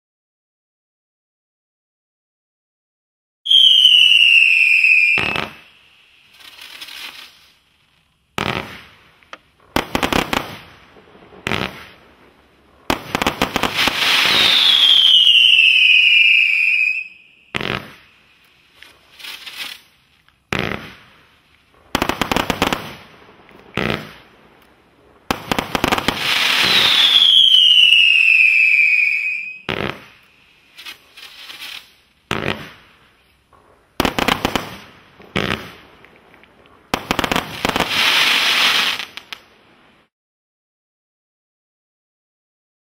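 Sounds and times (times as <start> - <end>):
falling firework whistles: 3.4 - 7.7, 8.4 - 9.0, 9.8 - 12.2, 12.9 - 24.4, 25.2 - 33.3, 36.9 - 39.4
firework bangs and crackles: 3.5 - 40.1.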